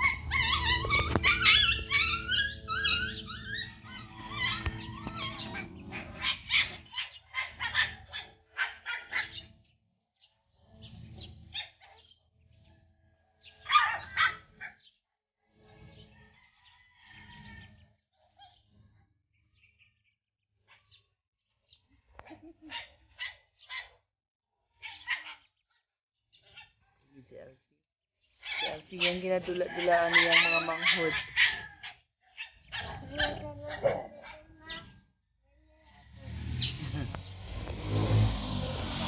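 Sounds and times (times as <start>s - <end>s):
dog yelping: 0.0s - 9.5s, 11.5s - 12.1s, 13.6s - 14.8s, 22.2s - 24.0s, 24.8s - 25.5s, 28.4s - 35.0s
puppies yipping and squealing: 0.0s - 9.5s, 11.4s - 12.2s, 13.6s - 14.8s, 22.2s - 24.0s, 24.8s - 25.6s, 28.4s - 35.0s.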